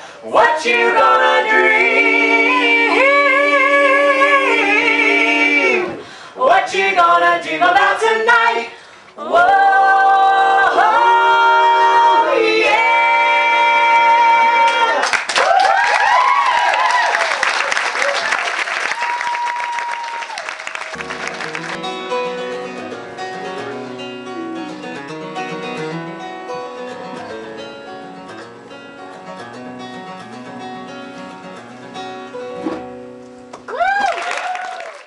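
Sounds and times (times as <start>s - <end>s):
acoustic guitar music: 0.0s - 6.1s, 21.0s - 33.7s
applause: 15.0s - 21.9s, 33.7s - 35.0s.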